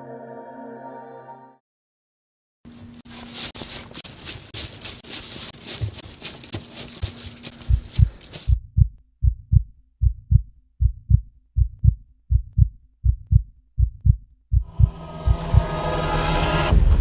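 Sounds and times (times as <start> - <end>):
heartbeat double thump: 7.6 - 15.8
rising rush of noise and tones: 14.6 - 17.0.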